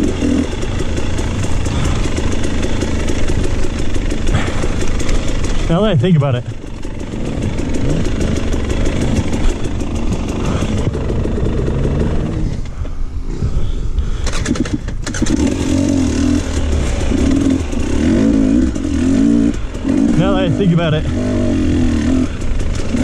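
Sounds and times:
dirt bike engine revving: 0.0 - 12.7, 14.1 - 23.0.

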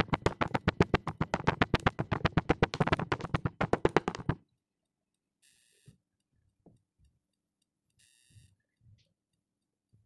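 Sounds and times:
fast sharp tapping: 0.0 - 4.4.

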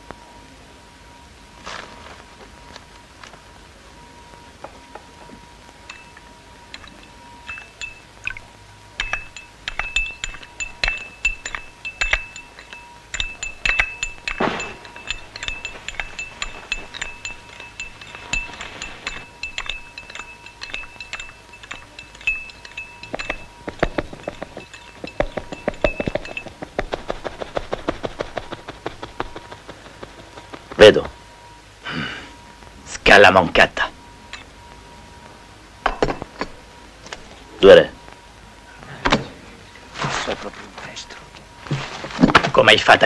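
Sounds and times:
teaspoon clinking in cup: 5.9 - 8.4, 9.0 - 26.6.

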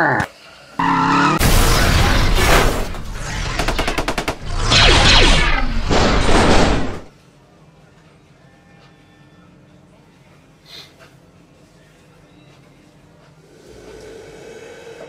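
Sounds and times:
gunfire-like blasts with falling sweeps: 1.4 - 7.1.

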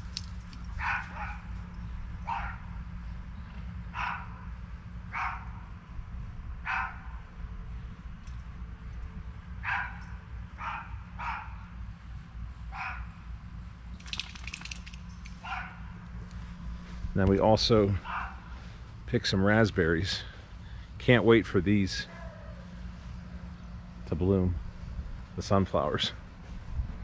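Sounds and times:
dog barking: 0.8 - 1.5, 2.3 - 2.6, 3.9 - 4.4, 5.1 - 5.5, 6.6 - 7.2, 9.6 - 11.6, 12.8 - 13.1, 15.4 - 15.8, 18.0 - 18.4, 22.1 - 22.6.

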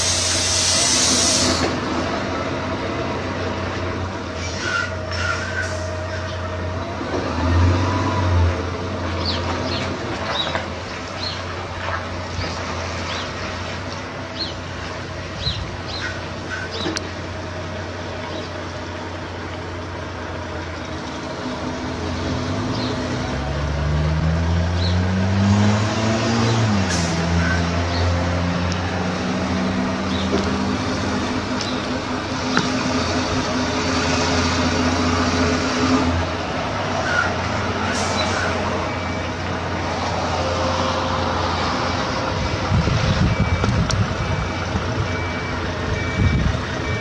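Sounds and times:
air brake hisses: 0.0 - 1.8, 37.8 - 38.6
diesel truck engine revving: 0.0 - 47.0.

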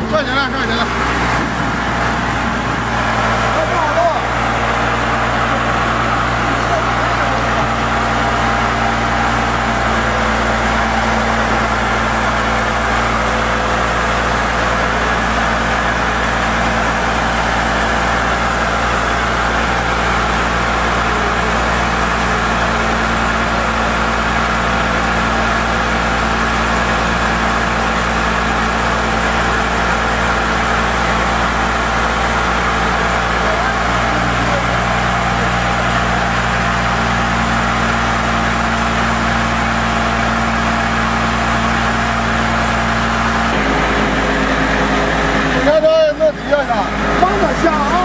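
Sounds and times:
drilling rig engine humming: 0.0 - 48.0.

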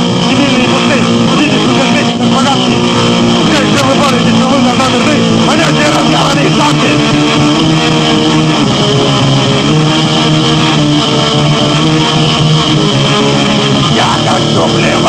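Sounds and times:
distorted electric guitar riffing: 0.0 - 15.0
punk band playing: 0.0 - 15.0.

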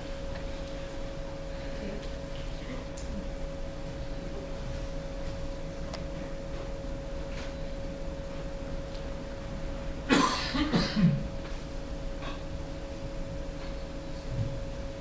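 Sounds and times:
person coughing: 10.1 - 11.3.

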